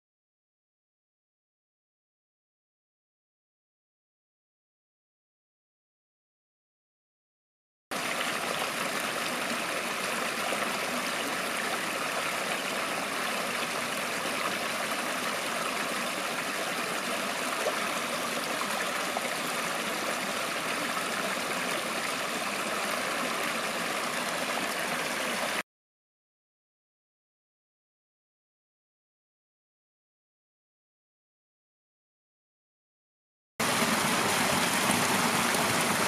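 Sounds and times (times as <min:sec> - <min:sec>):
stream splashing over rocks: 0:08.0 - 0:25.6, 0:33.6 - 0:36.0.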